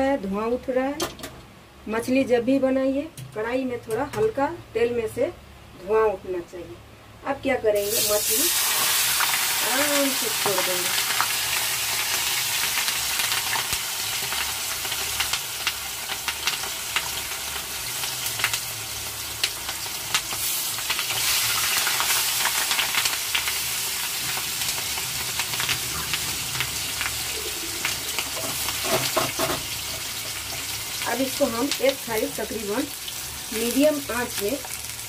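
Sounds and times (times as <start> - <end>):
fish frying in oil: 7.8 - 35.0
oil crackling and popping: 8.5 - 32.2.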